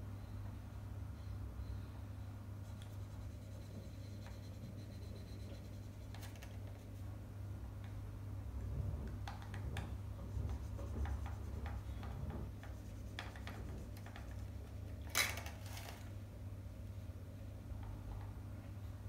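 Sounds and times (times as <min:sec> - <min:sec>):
marker scraping on paper: 0:02.6 - 0:07.1, 0:10.2 - 0:14.5
marker scratching on paper: 0:02.6 - 0:07.1, 0:10.2 - 0:14.5.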